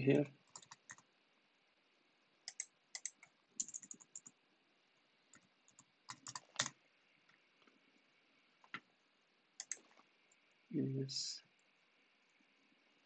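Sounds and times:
faint keyboard typing: 0.4s - 1.1s, 2.4s - 4.4s, 5.3s - 7.8s, 8.6s - 9.0s, 9.6s - 10.5s.

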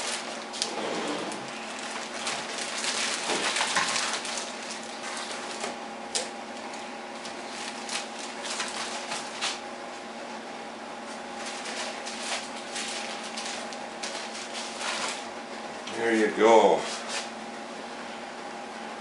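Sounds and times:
plastic bags crinkling: 0.0s - 0.7s, 1.3s - 5.8s, 7.1s - 9.6s, 11.3s - 15.3s.

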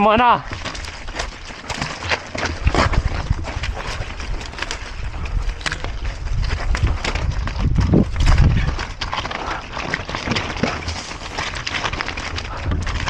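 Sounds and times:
bike knocks and rattles on rocks: 0.0s - 13.0s
steady low rumble: 2.6s - 9.7s.

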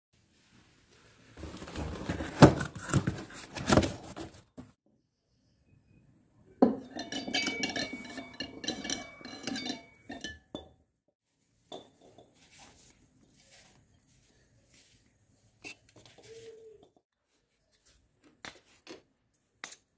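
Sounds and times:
cardboard box rustling open: 1.4s - 4.7s
metal clinking and rattling: 6.8s - 10.7s.

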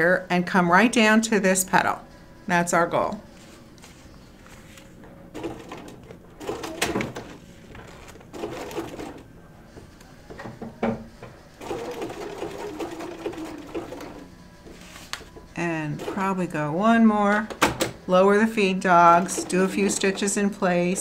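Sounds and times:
sewing machine stitching: 5.4s - 9.2s, 11.6s - 14.3s, 19.0s - 20.4s.

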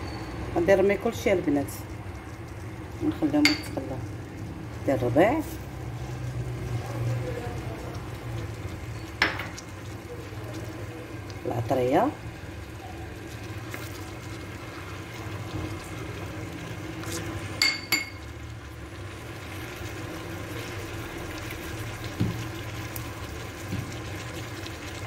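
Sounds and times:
ceramic bowl clinking on metal pot: 3.4s - 3.8s, 9.0s - 9.6s, 17.6s - 18.3s.

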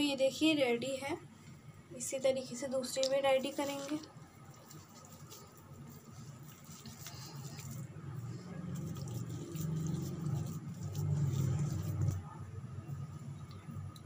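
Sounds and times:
hands squishing and patting meat: 3.0s - 12.2s.

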